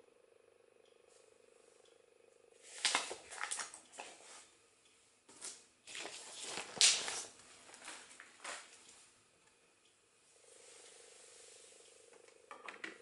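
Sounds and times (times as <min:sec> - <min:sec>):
rustling of record sleeve: 0:02.6 - 0:04.5, 0:05.3 - 0:08.9.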